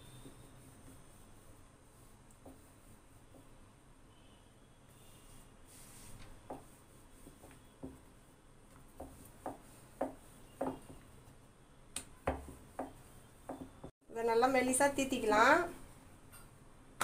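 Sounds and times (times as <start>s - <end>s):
rolling pin rolling dough: 0.0s - 3.6s, 5.7s - 11.4s, 12.0s - 13.9s
wood-on-wood knocks: 9.0s - 11.0s, 12.3s - 13.9s.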